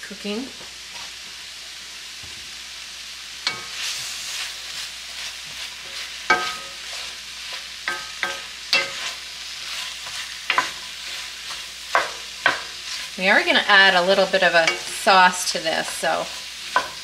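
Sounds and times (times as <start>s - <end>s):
vegetables sizzling in a skillet: 0.0s - 17.0s
wooden spatula knocking pan: 6.3s - 6.8s, 7.9s - 9.1s, 11.9s - 12.7s.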